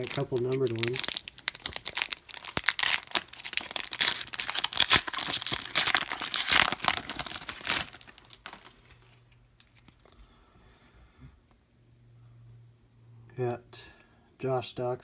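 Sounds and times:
foil wrapper tearing and crinkling: 0.0s - 9.0s.

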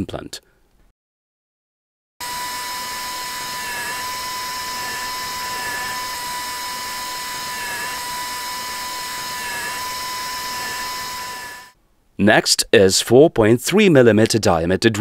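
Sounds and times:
dental drill whining: 2.2s - 11.8s.

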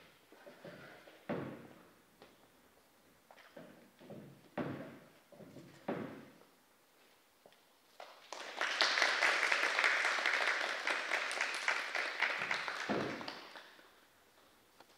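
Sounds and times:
audience applauding: 8.2s - 13.9s.

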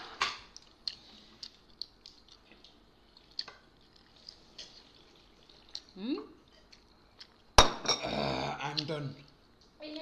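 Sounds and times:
wet chewing sounds: 0.5s - 7.6s.

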